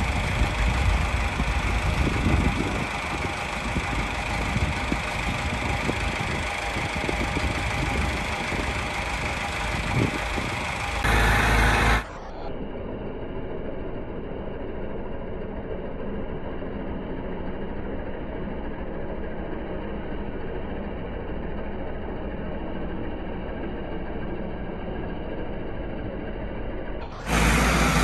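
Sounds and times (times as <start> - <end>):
tractor diesel engine under load: 0.0 - 17.4, 27.0 - 28.0.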